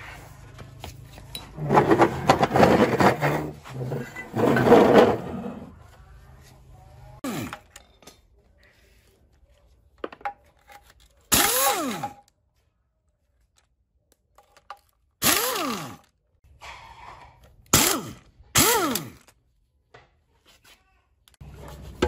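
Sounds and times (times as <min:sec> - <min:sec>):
power tool motor bursts: 0:11.3 - 0:12.2, 0:15.2 - 0:16.1, 0:17.7 - 0:19.3.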